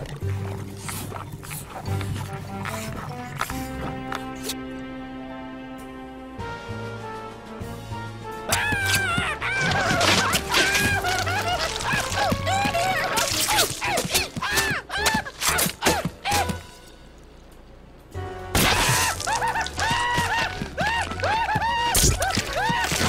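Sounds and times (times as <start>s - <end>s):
cartoon music: 8.4s - 16.8s, 18.6s - 23.0s
high gliding character cries: 8.5s - 15.3s.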